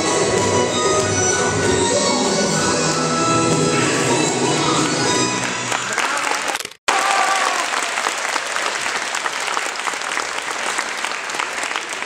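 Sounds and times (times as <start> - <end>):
music: 0.0 - 6.0
audience applauding: 5.4 - 12.0.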